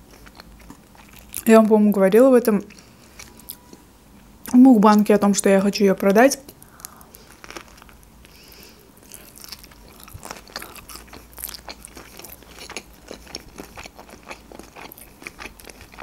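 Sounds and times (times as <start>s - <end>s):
chewing wet clicks and crunches: 9.0s - 16.0s.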